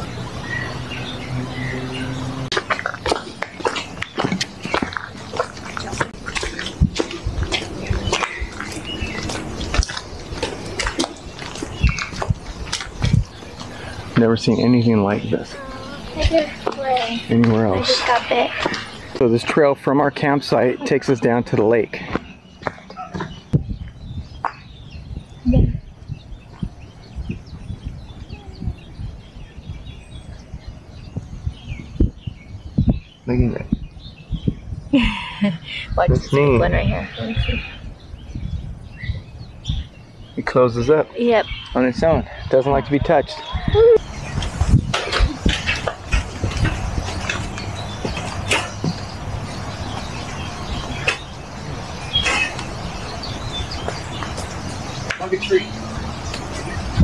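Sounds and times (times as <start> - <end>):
small birds chirping: 0.0 - 57.0
footsteps on wooden boards: 2.5 - 14.3, 16.1 - 19.2, 22.0 - 24.7, 44.1 - 51.4, 52.1 - 57.0.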